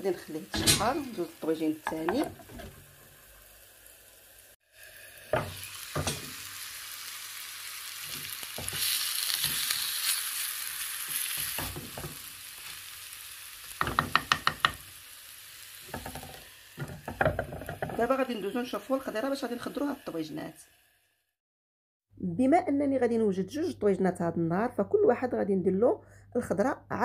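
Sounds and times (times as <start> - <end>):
onions and meat sizzling: 0.0 - 21.3
wooden spoon knocking clay pot: 13.8 - 14.8.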